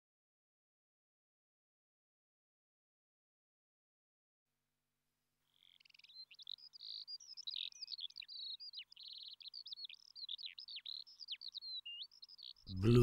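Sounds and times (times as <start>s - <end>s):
songbird singing: 5.4s - 13.0s.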